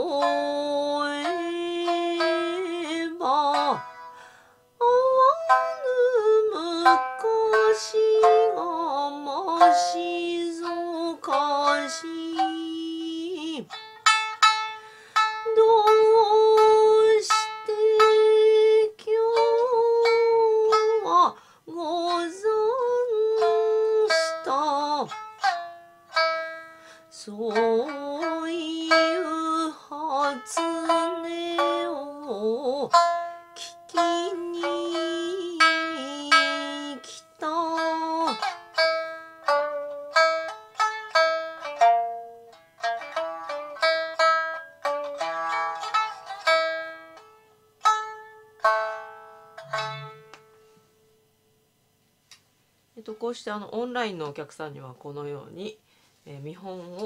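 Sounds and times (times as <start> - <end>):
woman singing: 0.0 - 3.9, 4.8 - 13.8, 15.4 - 25.2, 27.1 - 38.6, 56.3 - 57.0
plucked shamisen notes: 0.0 - 51.5.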